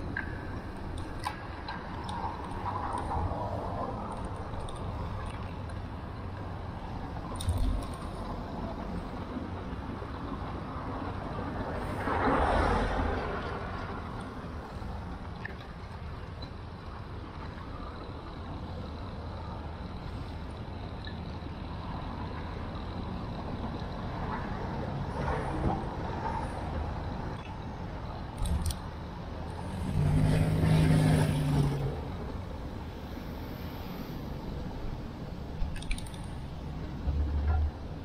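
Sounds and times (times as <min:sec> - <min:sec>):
road noise: 0:00.0 - 0:38.0
motor vehicle engine passing: 0:29.6 - 0:32.1.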